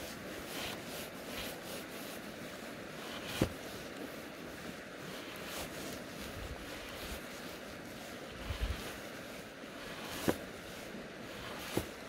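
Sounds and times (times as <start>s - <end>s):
river water flowing: 0.0s - 12.0s
wind on microphone: 8.3s - 9.1s.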